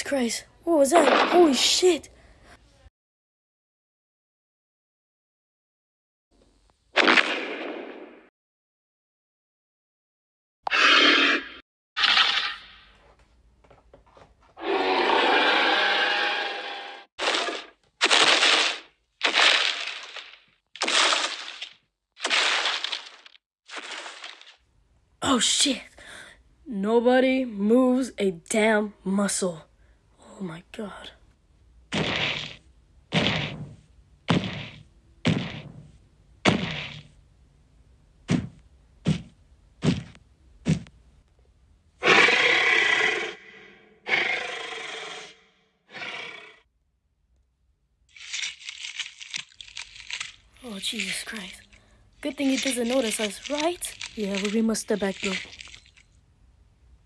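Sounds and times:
heavy stomping footsteps: 31.9 - 37.1, 38.3 - 41.0
person roaring like a dinosaur: 42.0 - 46.6.

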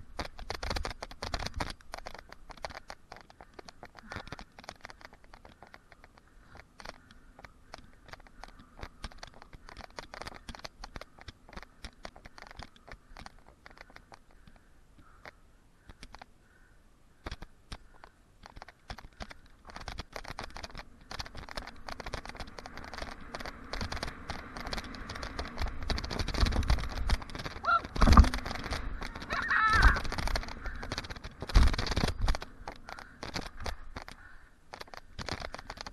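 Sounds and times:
bike clicking and rattling: 0.0 - 35.9
bike tyres crunching on grit: 17.4 - 35.9.

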